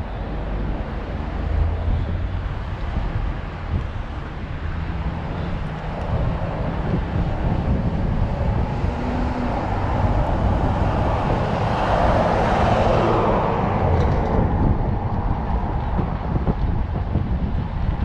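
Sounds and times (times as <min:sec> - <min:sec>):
vehicle passing: 0:00.0 - 0:17.6
wind rumbling on microphone: 0:00.0 - 0:18.0.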